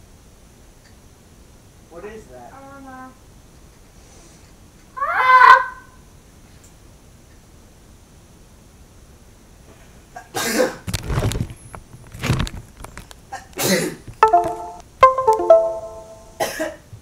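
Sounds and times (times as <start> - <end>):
person coughing hard: 10.2 - 10.8, 16.4 - 16.8
ringing musical notes: 14.2 - 16.4.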